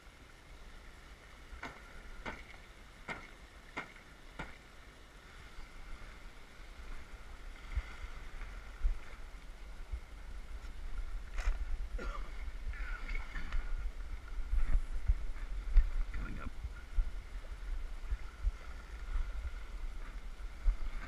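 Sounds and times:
water rushing along hull: 0.0 - 21.0
sharp knocks: 1.6 - 4.6
wind rumbling on microphone: 5.2 - 21.0.

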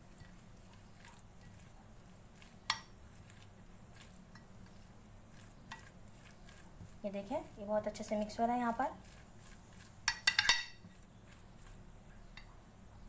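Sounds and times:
utensil scraping in bowl: 0.0 - 11.9
utensil clinking against bowl: 10.1 - 11.0.

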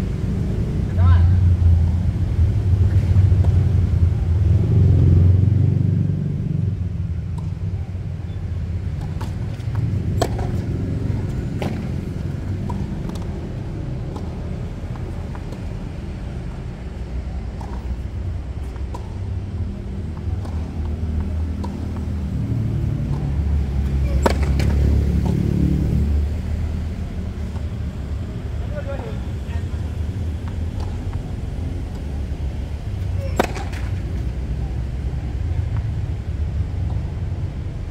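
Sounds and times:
steady low rumble: 0.0 - 37.9
tennis balls struck by rackets: 7.1 - 37.3
tennis balls bouncing on hard court: 7.3 - 7.8, 8.8 - 28.8, 29.6 - 37.3.

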